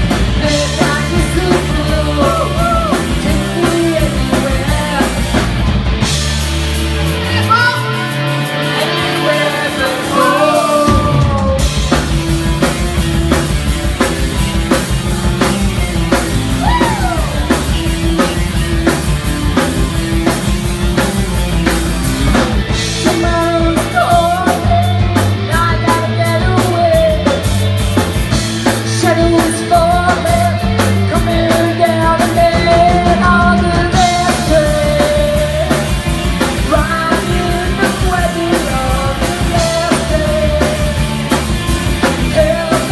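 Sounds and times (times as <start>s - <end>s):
bass guitar: 0.0s - 42.9s
drums: 0.0s - 42.9s
electric guitar: 0.0s - 42.9s
woman singing lead vocals: 0.1s - 5.5s, 7.3s - 12.0s, 16.6s - 17.5s, 22.8s - 27.6s, 28.7s - 41.4s, 42.0s - 42.9s.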